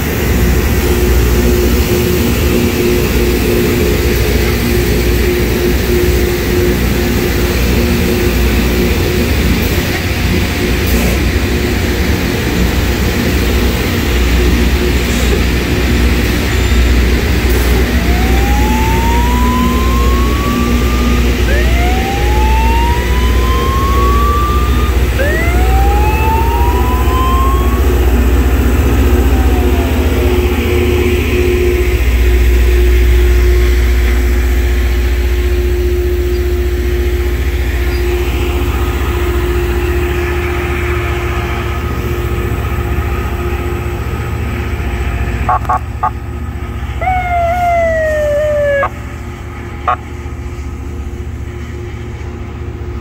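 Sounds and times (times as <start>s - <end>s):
rail grinder engine rumble: 0.0s - 53.0s
rising whines: 11.6s - 40.1s, 46.8s - 49.2s.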